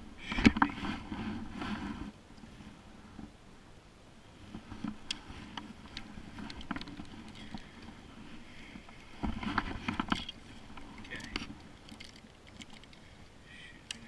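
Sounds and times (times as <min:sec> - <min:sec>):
fishing gear clicking and knocking: 0:04.8 - 0:08.0, 0:08.7 - 0:14.0.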